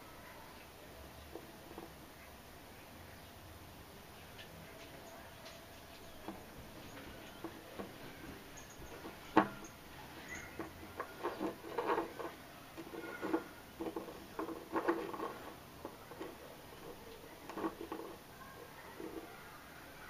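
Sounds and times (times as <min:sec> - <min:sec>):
stone clicking and scraping on table: 0:05.9 - 0:18.3.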